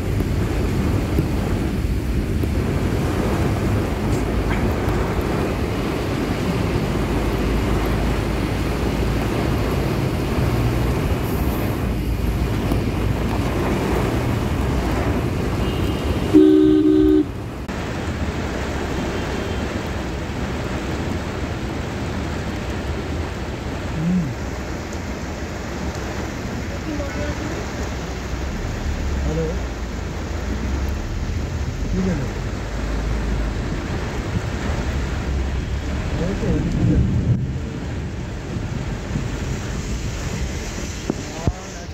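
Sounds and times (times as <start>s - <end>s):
engine rumble: 0.0s - 41.9s
rain: 0.0s - 41.9s
tyres rushing on wet road: 0.0s - 41.9s
vehicle horn honking: 15.6s - 17.3s.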